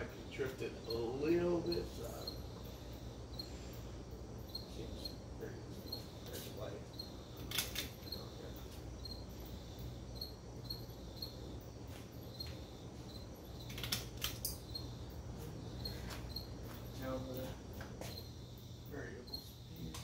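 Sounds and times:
ceiling fan motor humming: 0.0s - 20.0s
faint high ticking: 0.4s - 17.5s
louder clicks: 7.4s - 8.0s, 13.6s - 14.6s.

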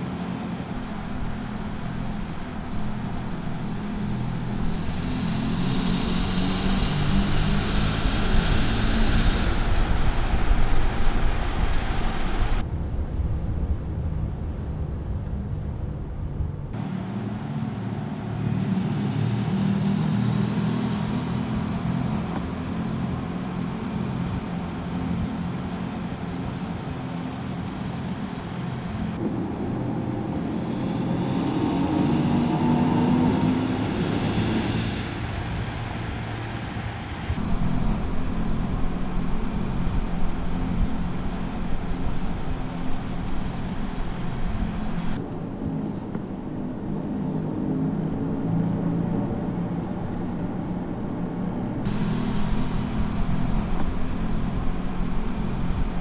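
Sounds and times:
electric car hum: 0.0s - 14.1s, 15.0s - 56.0s.

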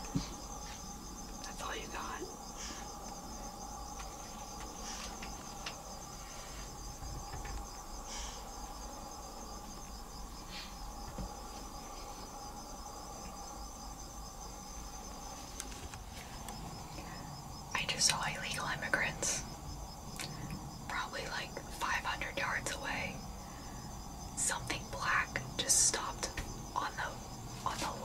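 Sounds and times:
insects trilling: 0.0s - 28.0s
low steady hum: 0.0s - 28.0s
faint clicks: 3.9s - 5.8s, 20.2s - 20.6s.

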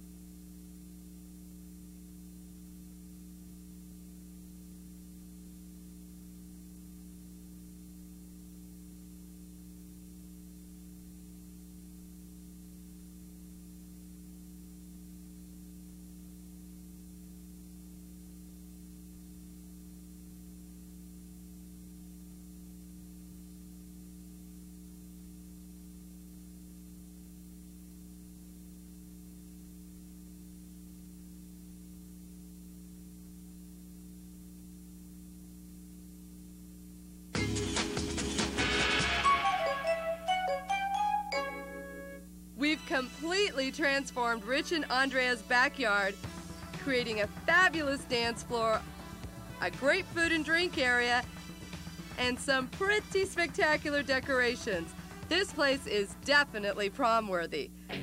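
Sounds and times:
steady electrical hum: 0.0s - 37.4s, 38.0s - 58.0s
higher hum tone: 39.1s - 53.0s.

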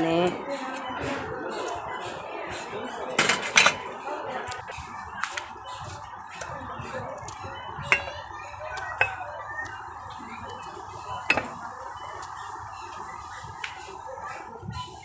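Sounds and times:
steady background noise: 0.0s - 15.0s
metal pans clinking: 2.9s - 3.9s, 7.2s - 9.8s, 10.5s - 11.7s.

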